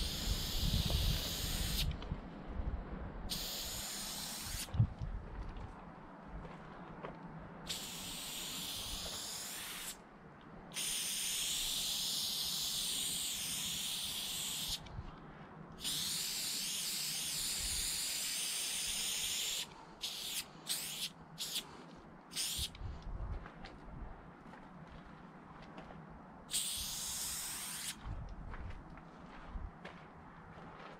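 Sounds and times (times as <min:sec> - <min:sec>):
spray paint can hissing: 0:00.0 - 0:01.9, 0:03.3 - 0:04.7, 0:07.7 - 0:10.0, 0:10.7 - 0:14.8, 0:15.8 - 0:21.7, 0:22.3 - 0:22.7, 0:26.5 - 0:28.0.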